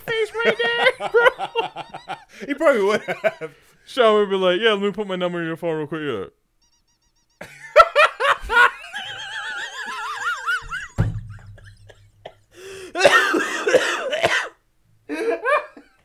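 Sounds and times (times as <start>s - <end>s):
people laughing: 0.0s - 3.6s, 7.4s - 12.6s
thump: 10.6s - 11.6s.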